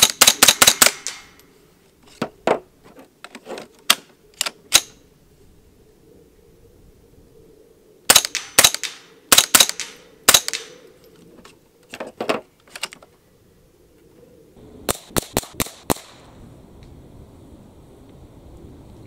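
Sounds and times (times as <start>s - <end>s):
suppressed rifle shots: 0.0s - 1.4s, 8.1s - 10.8s.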